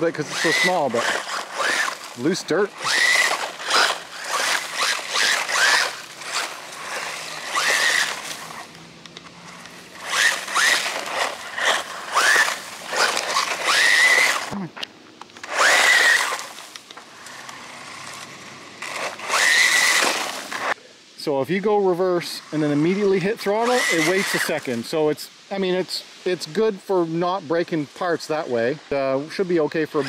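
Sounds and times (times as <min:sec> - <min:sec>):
electric motor whining: 0:00.0 - 0:14.6, 0:15.4 - 0:20.8, 0:22.6 - 0:24.8
tyres spraying loose dirt: 0:00.0 - 0:30.0.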